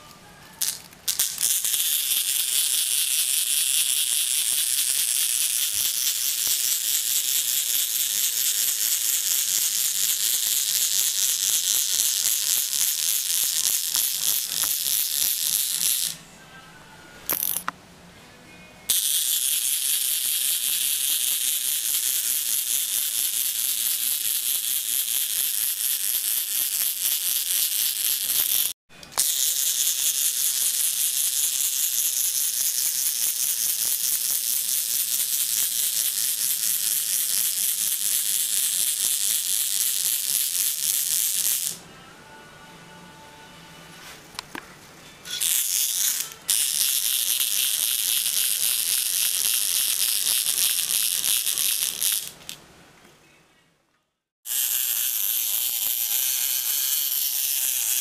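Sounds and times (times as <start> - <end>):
clockwork motor whirring rattle: 18.9 - 41.7, 45.3 - 52.6, 54.5 - 58.0.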